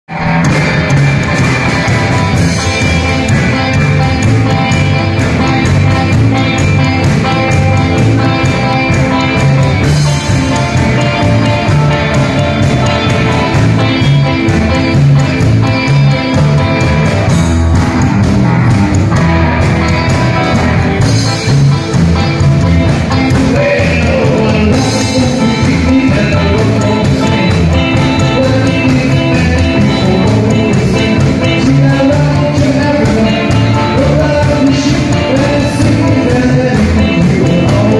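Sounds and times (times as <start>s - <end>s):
live rockabilly band playing: 0.1s - 37.9s.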